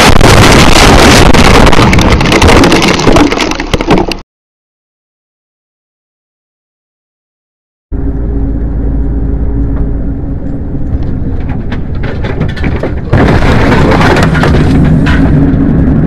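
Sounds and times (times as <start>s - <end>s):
loud rush of noise: 0.0s - 3.3s
rattles: 0.5s - 4.2s, 10.8s - 15.8s
vehicle engine and road noise: 7.9s - 13.2s.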